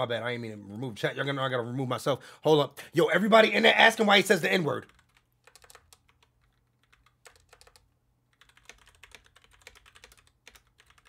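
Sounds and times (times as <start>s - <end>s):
typing on computer keyboard: 4.8s - 11.0s.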